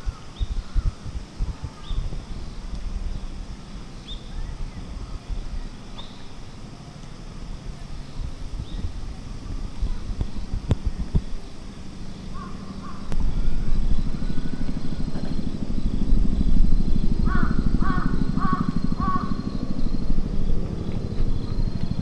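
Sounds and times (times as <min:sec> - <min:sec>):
low engine rumble: 0:00.0 - 0:22.0
crow cawing: 0:12.3 - 0:13.1, 0:17.3 - 0:19.4.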